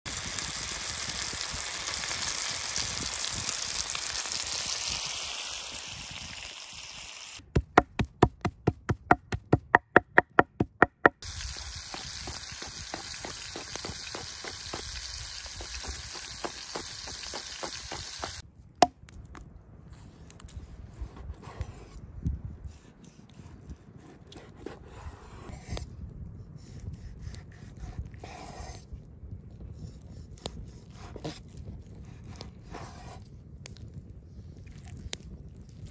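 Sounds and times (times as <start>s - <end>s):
meat sizzling in frying pan: 0.1s - 7.4s, 11.2s - 18.4s
faint hiss: 0.2s - 7.4s
cleaver chopping on wooden board: 7.5s - 11.2s.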